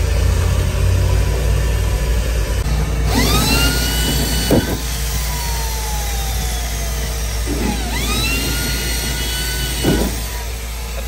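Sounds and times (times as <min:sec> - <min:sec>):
cordless drill motor whine: 0:02.7 - 0:11.0.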